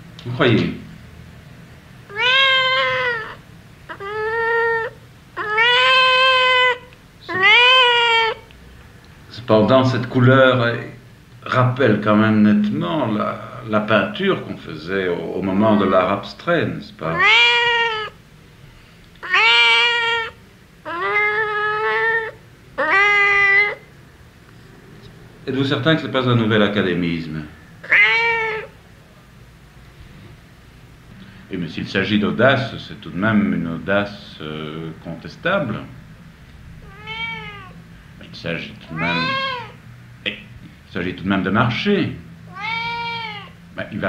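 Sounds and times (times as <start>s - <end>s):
cat meowing: 2.1s - 8.5s, 15.6s - 16.1s, 17.0s - 18.2s, 19.2s - 23.9s, 27.8s - 28.8s, 36.8s - 37.8s, 38.8s - 39.8s, 42.5s - 43.6s.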